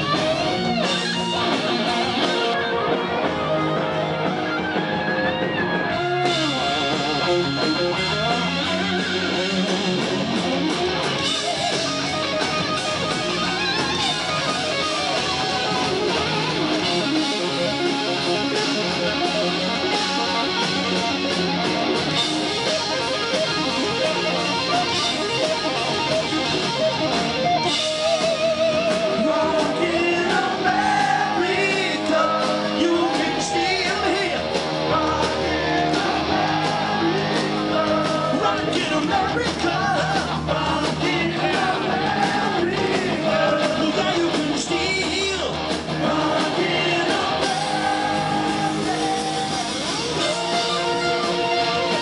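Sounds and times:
bending lead guitar line: 0:00.0 - 0:52.0
rock band playing instrumental: 0:00.0 - 0:52.0.

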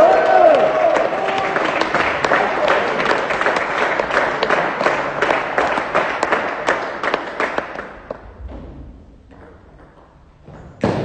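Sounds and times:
spectators clapping: 0:00.0 - 0:08.3.

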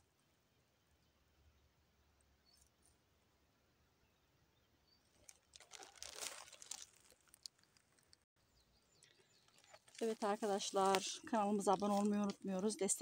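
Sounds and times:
footsteps on dry leaves: 0:05.2 - 0:07.4, 0:09.5 - 0:12.3.

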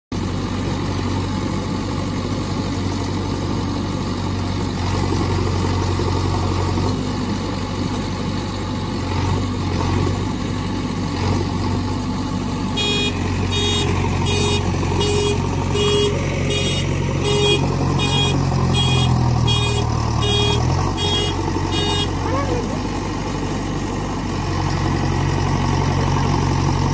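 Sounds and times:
vehicle engine running: 0:00.1 - 0:26.9
repeating electronic beep: 0:12.8 - 0:22.2.

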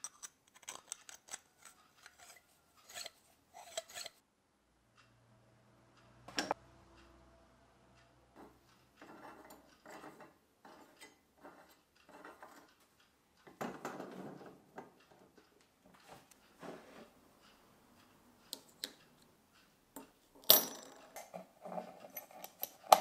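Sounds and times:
brass fittings scraping and clinking: 0:00.0 - 0:04.2, 0:08.4 - 0:16.2, 0:20.0 - 0:23.0.

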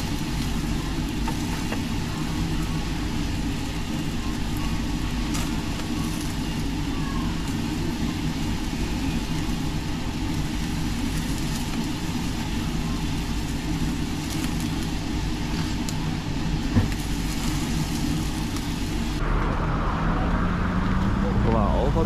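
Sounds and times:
meat sizzling on a grill: 0:00.0 - 0:19.2
low mechanical hum: 0:00.0 - 0:22.0
street traffic: 0:18.8 - 0:22.0.

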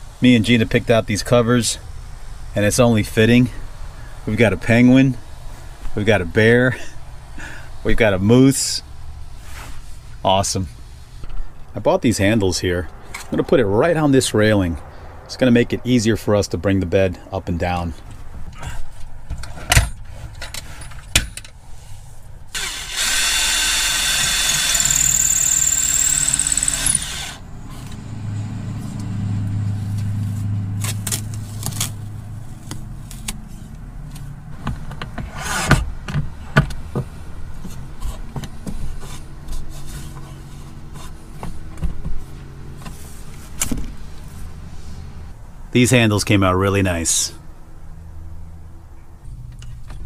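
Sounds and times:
power drill whining: 0:22.5 - 0:27.4.

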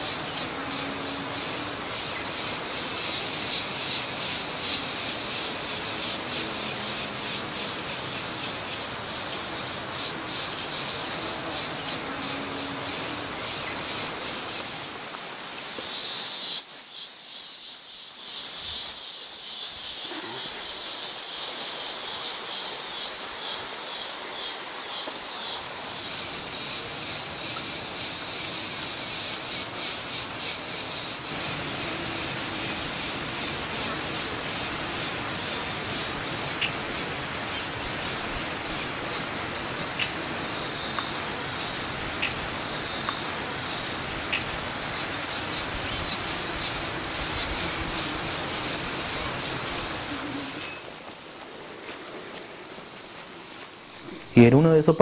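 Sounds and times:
insects chirping: 0:00.0 - 0:55.0.

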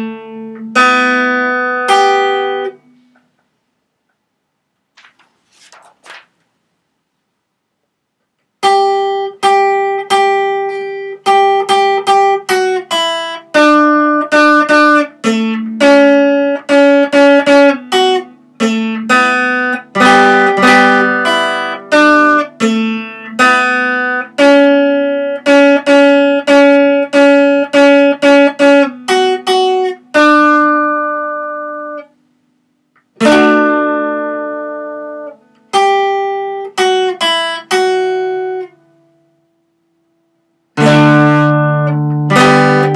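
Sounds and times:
acoustic guitar picking: 0:00.0 - 0:03.4, 0:08.6 - 0:32.2, 0:32.8 - 0:39.5, 0:40.7 - 0:42.9.

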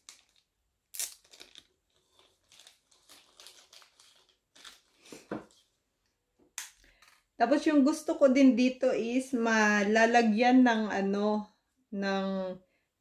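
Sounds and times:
packaging crinkling: 0:00.0 - 0:05.6.

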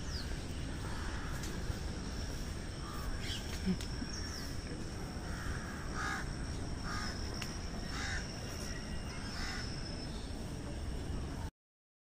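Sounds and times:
crow cawing: 0:00.8 - 0:01.4, 0:02.8 - 0:03.4, 0:05.2 - 0:07.2, 0:07.8 - 0:09.8
thin steady high tone: 0:06.3 - 0:11.5.

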